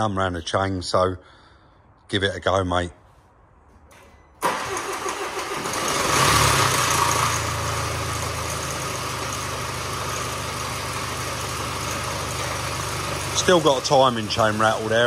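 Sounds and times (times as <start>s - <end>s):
diesel engine cranking and starting: 4.4s - 15.0s
diesel engine idling: 4.4s - 15.0s.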